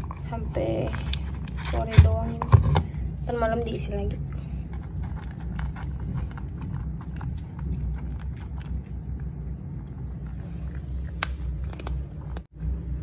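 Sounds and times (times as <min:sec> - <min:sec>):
cats crunching dry kibble: 0:00.0 - 0:02.0, 0:04.4 - 0:12.5
low rumble: 0:00.0 - 0:13.0.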